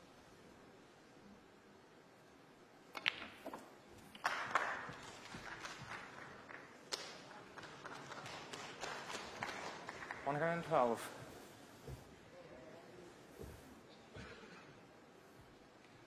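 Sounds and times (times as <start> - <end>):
snooker balls clicking: 2.9 - 4.2
ball dropping into pocket: 2.9 - 4.5
audience applause: 4.2 - 11.0.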